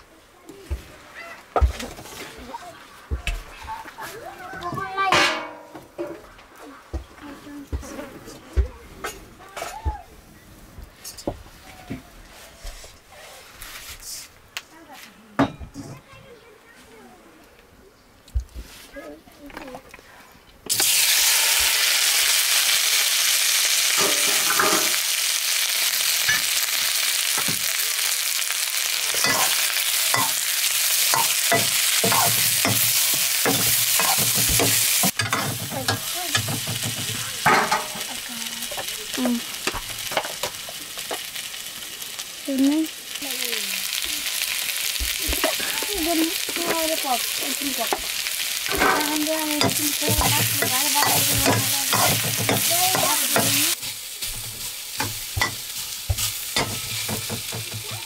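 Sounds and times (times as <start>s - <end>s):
food sizzling in hot oil: 20.7s - 58.0s
utensil stirring in pan: 25.9s - 58.0s.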